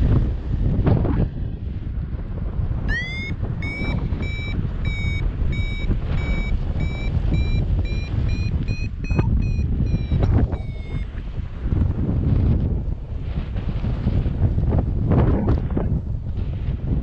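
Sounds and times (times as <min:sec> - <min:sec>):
wind rush on microphone: 0:00.0 - 0:17.0
variometer short high beeps: 0:02.9 - 0:11.1.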